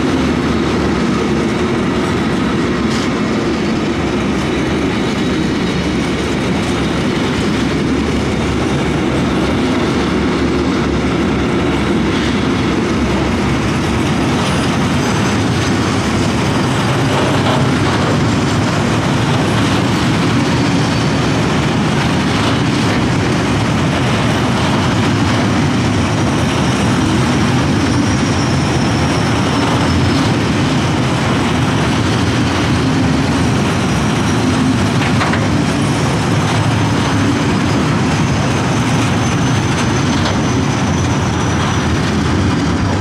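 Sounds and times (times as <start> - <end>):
freight train wheels rumbling: 0.0 - 43.0
high-pitched wheel squeal: 26.2 - 30.6, 37.7 - 42.4.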